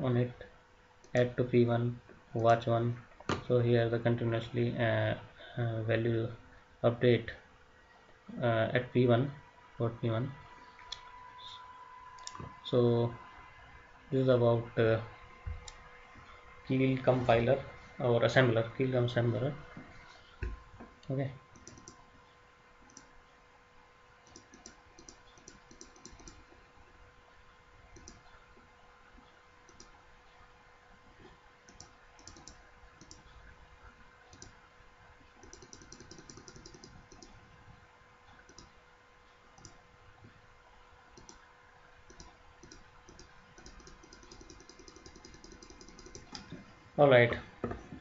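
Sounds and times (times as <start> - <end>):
faint steady tone: 0.0 - 48.0
computer mouse clicks: 12.2 - 12.5, 21.5 - 22.0, 22.8 - 23.1, 24.2 - 26.6, 27.9 - 28.4, 29.7 - 30.0, 31.2 - 33.4, 34.3 - 34.6, 35.4 - 37.5, 38.3 - 38.8, 39.6 - 39.8, 41.2 - 41.5, 42.1 - 46.6.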